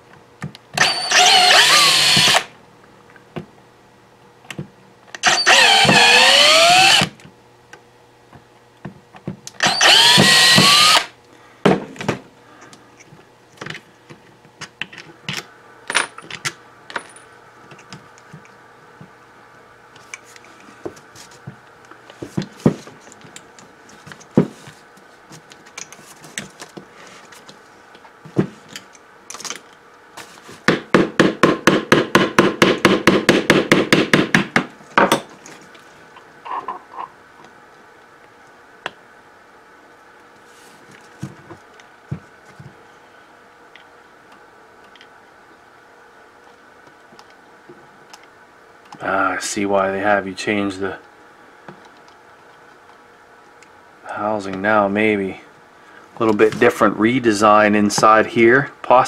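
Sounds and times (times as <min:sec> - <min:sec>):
cordless drill whine: 0:00.8 - 0:02.5, 0:05.2 - 0:07.1, 0:09.6 - 0:11.1.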